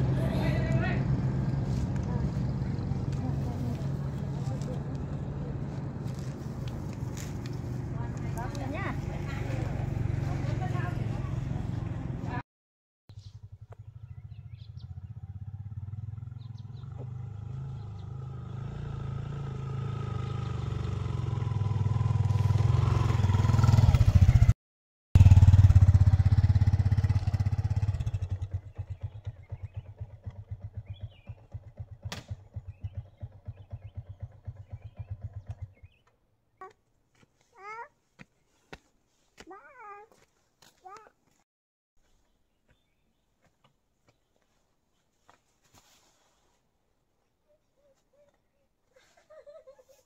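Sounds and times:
small motorcycle engine: 0:13.2 - 0:24.6, 0:25.2 - 0:36.1.

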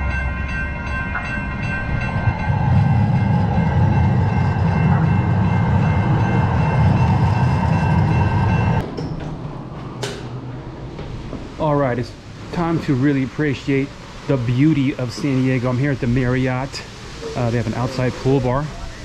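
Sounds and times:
steady high tones: 0:00.0 - 0:08.8
vehicle engine rumble: 0:00.0 - 0:19.0.

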